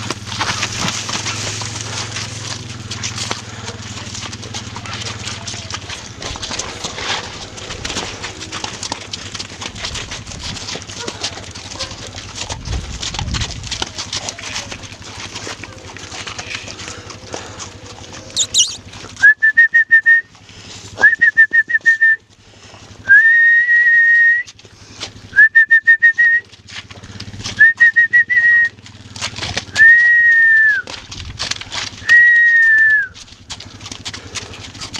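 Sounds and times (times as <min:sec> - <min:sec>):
hooves in mud: 0:00.0 - 0:34.9
high-pitched whistling: 0:18.4 - 0:20.0.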